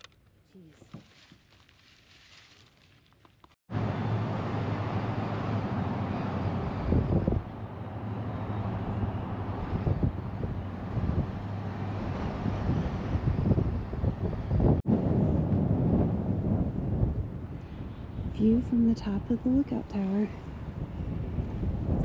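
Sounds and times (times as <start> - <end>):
wind buffeting microphone: 6.0 - 22.0.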